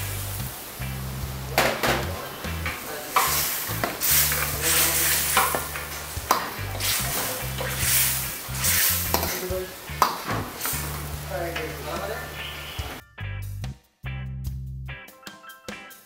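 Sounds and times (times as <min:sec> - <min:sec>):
curry sizzling: 0:00.0 - 0:13.0
ladle scraping iron pan: 0:03.1 - 0:09.5.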